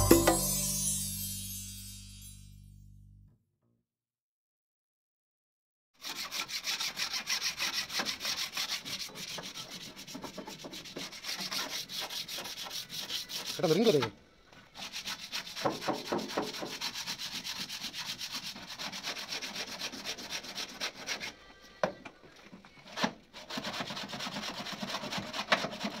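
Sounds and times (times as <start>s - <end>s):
hand sanding with sanding block: 6.0s - 14.0s, 14.7s - 21.4s, 22.9s - 26.0s.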